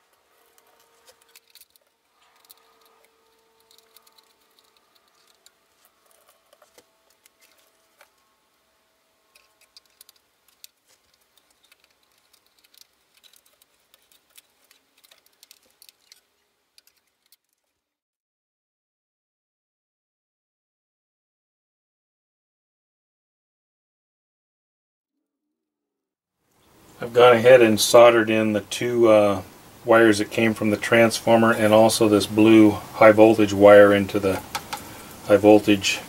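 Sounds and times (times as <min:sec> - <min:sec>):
screws and screwdriver clicking: 0:00.5 - 0:07.7.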